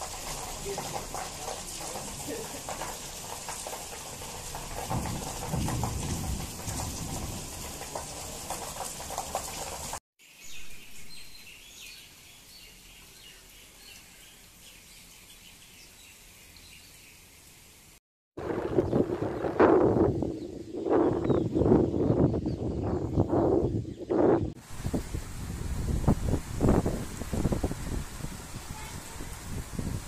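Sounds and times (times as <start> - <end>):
heavy rain pouring: 0.0 - 10.0, 24.6 - 30.0.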